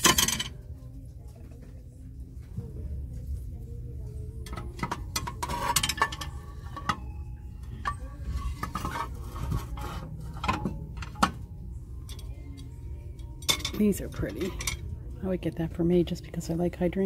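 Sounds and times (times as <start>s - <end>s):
porcelain plates clinking: 4.8s - 7.1s.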